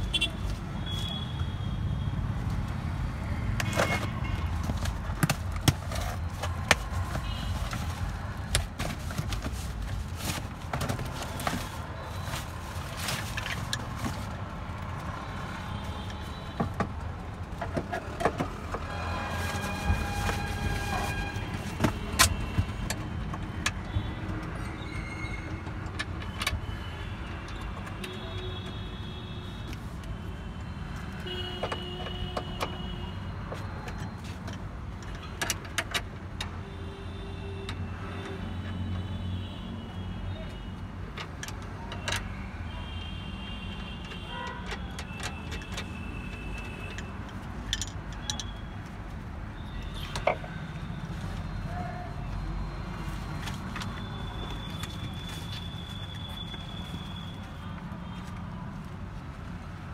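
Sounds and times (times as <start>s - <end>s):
cardboard rustling: 3.8s - 14.5s
clicks and knocks of handling parts: 21.5s - 24.6s, 33.4s - 36.6s, 41.0s - 42.4s, 43.7s - 49.2s.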